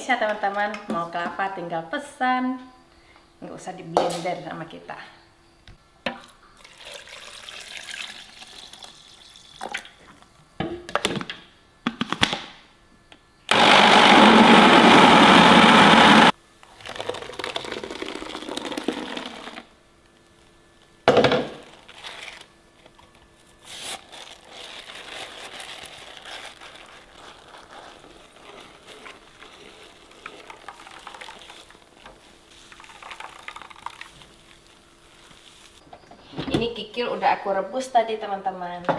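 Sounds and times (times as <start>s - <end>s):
liquid pouring and splashing: 6.6s - 10.0s, 16.8s - 19.6s, 27.4s - 35.8s
blender grinding: 13.5s - 19.7s.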